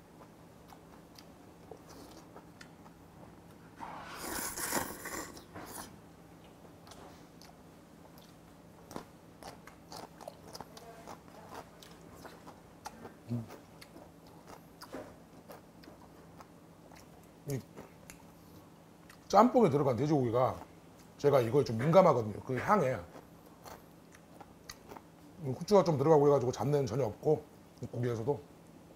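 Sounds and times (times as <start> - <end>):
person slurping noodles: 3.8 - 5.9
wet chewing clicks: 6.4 - 19.3, 23.1 - 25.1.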